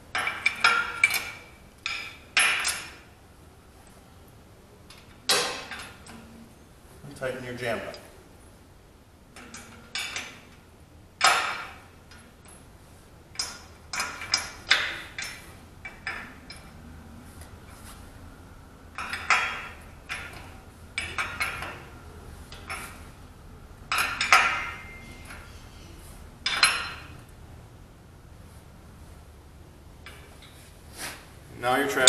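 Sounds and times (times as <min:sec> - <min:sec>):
steel wrenches clinking on metal: 0:00.2 - 0:03.0, 0:11.2 - 0:12.4, 0:13.4 - 0:16.8, 0:19.0 - 0:21.9, 0:23.9 - 0:25.6, 0:26.4 - 0:27.2.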